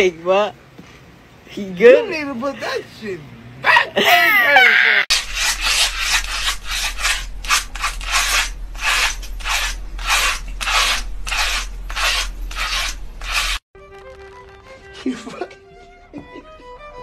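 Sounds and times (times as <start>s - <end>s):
razor scraping over scalp: 5.1s - 13.6s.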